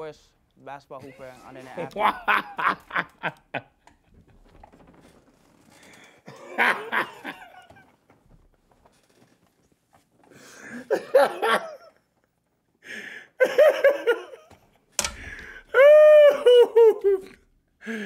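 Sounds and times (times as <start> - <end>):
man laughing: 1.6 - 3.8, 6.3 - 7.8, 10.7 - 12.0, 13.4 - 14.5, 15.7 - 17.4.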